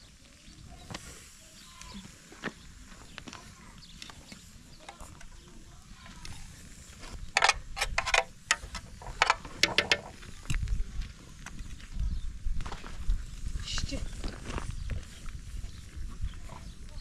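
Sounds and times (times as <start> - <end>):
faint outdoor background: 0.0 - 17.0
sharp clattering strokes: 7.0 - 10.2.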